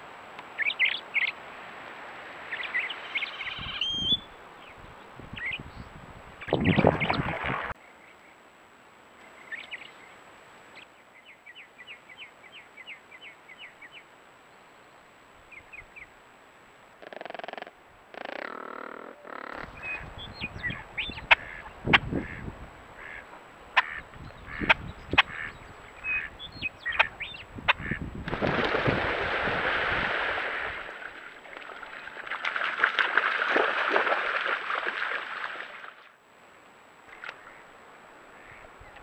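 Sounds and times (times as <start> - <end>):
water splashing: 6.5 - 7.8, 28.2 - 36.1
ducks quacking: 21.2 - 28.1
wings beating on water: 27.7 - 35.8.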